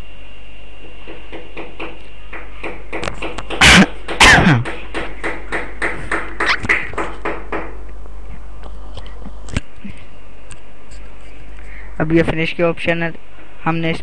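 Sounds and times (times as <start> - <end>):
steady electrical hum: 0.0 - 14.0
rapid knocks: 1.1 - 7.8.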